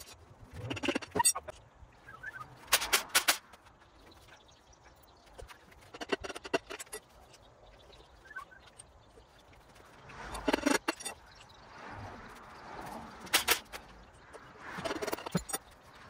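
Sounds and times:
metal tools clinking on engine block: 0:14.8 - 0:15.8.

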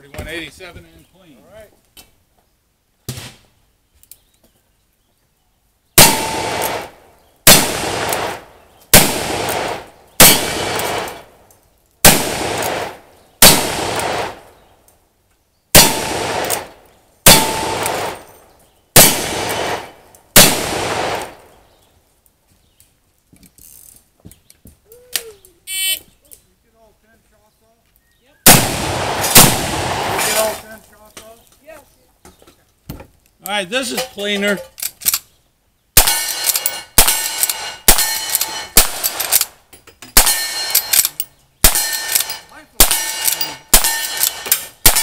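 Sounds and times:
revolver shots echoing: 0:06.0 - 0:11.3, 0:12.1 - 0:14.5, 0:15.8 - 0:18.3, 0:19.0 - 0:21.5, 0:28.5 - 0:30.5.

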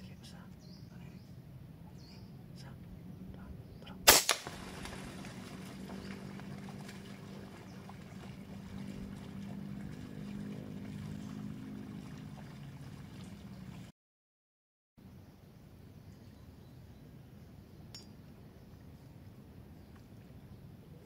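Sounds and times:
steady low hum: 0:00.0 - 0:13.9
air rifle shot crack: 0:04.0 - 0:05.0
second weaker crack: 0:04.1 - 0:05.0.

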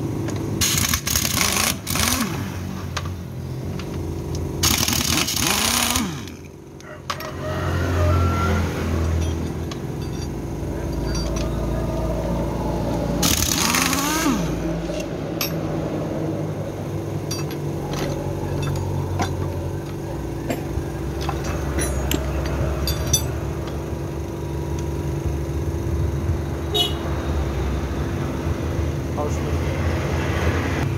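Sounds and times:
steady mechanical drone: 0:00.0 - 0:30.9
loud whir: 0:00.3 - 0:06.6, 0:07.3 - 0:30.9
metal tools clinking: 0:09.0 - 0:15.9, 0:16.9 - 0:24.4.

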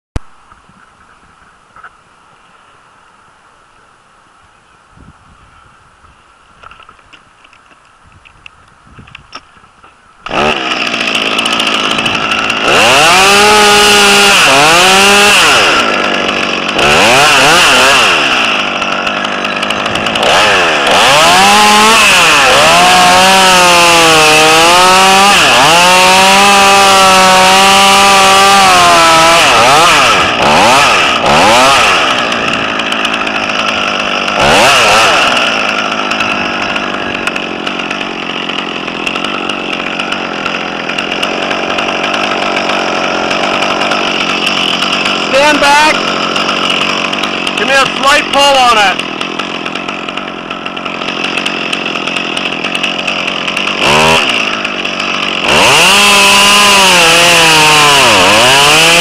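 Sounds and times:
chainsaw cutting wood: 0:06.6 - 0:59.0.

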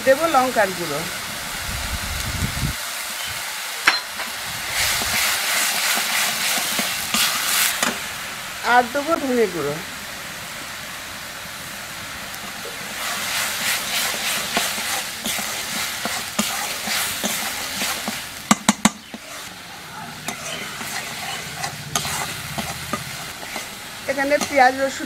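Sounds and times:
paste sizzling in a wok: 0:00.0 - 0:25.0
metal spatula scraping a wok: 0:04.0 - 0:07.9, 0:12.9 - 0:25.0.

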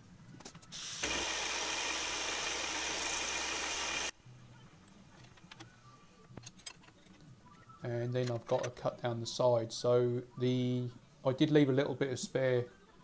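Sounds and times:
coolant mist spray: 0:00.8 - 0:04.1.

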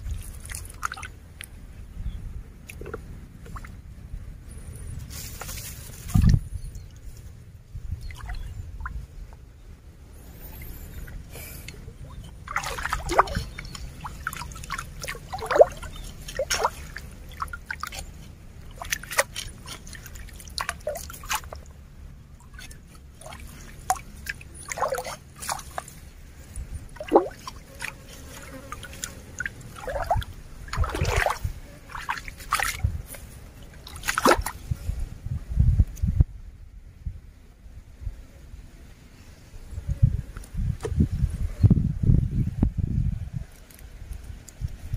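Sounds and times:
net splashing in water: 0:12.4 - 0:21.7, 0:22.5 - 0:26.0, 0:26.9 - 0:34.6
water dripping off net: 0:27.0 - 0:32.8.

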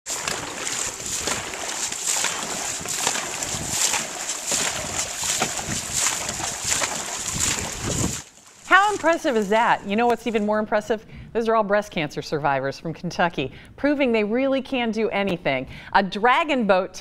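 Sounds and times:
paddles splashing in water: 0:00.0 - 0:10.6.

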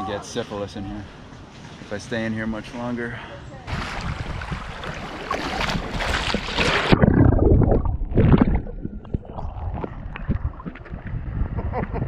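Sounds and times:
water splashing from wading: 0:03.7 - 0:11.6
underwater bubbling and gurgling: 0:03.7 - 0:12.0.

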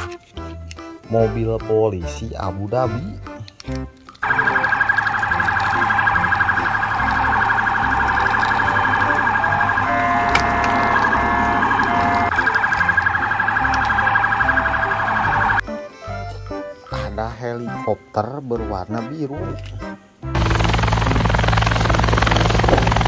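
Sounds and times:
police siren warbling: 0:04.2 - 0:15.6.

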